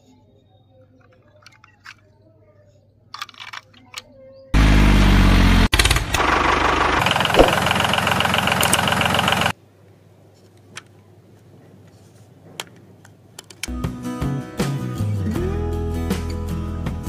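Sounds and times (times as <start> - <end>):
tractor engine pulsing: 4.6 - 9.5.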